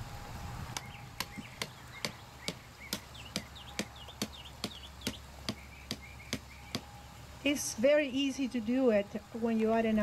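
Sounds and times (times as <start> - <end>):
hammer striking a stake: 0.8 - 6.9.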